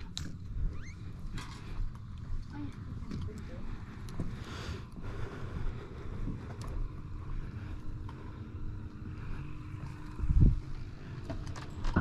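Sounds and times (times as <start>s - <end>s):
wind buffeting microphone: 9.8s - 11.2s.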